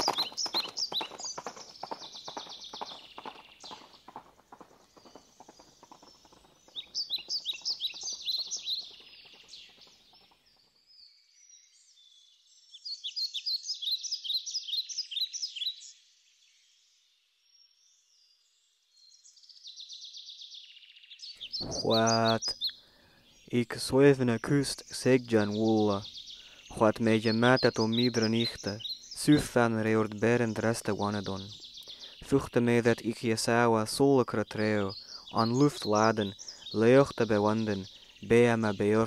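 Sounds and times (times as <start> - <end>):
horse hooves clip-clopping: 0.0 - 10.7
birds chirping: 0.0 - 15.9, 19.0 - 39.0.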